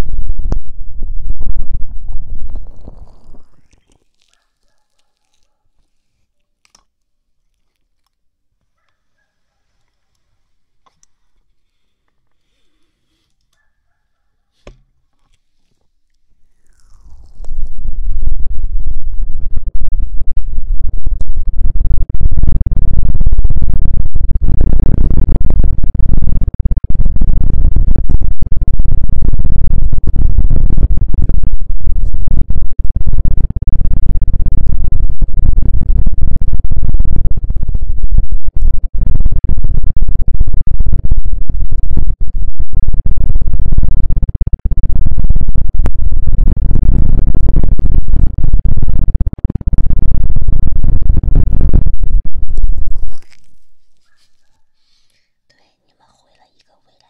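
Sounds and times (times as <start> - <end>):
rubbing and scratching on microphone: 2.5 - 19.8, 44.2 - 57.0.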